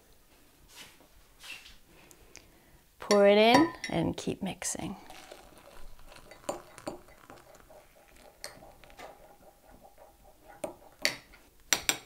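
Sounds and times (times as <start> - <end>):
teaspoon clinking against mug: 5.0 - 12.0.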